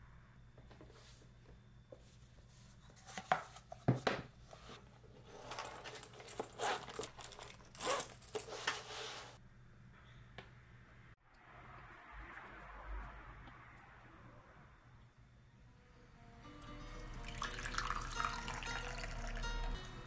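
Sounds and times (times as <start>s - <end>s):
fabric pouch rustling and scraping: 4.5s - 9.4s.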